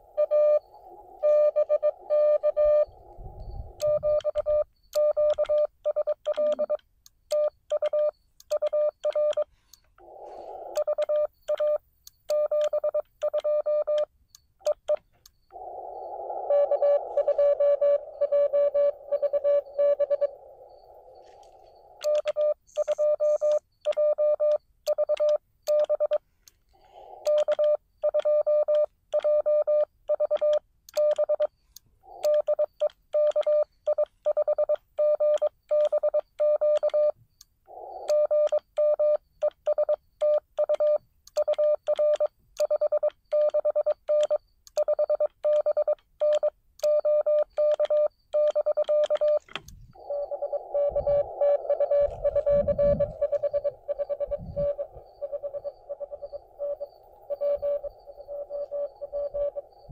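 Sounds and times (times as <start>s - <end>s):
morse code beeps: 0.0s - 9.9s, 10.5s - 26.4s, 27.2s - 59.9s
radio band hiss: 49.4s - 59.9s.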